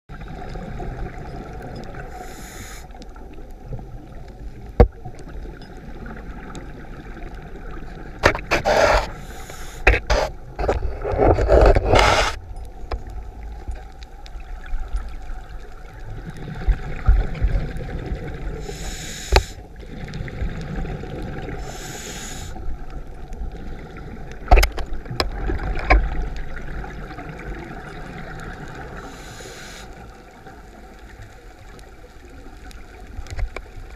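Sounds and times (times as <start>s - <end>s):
muffled rush of water: 0.1s - 33.9s.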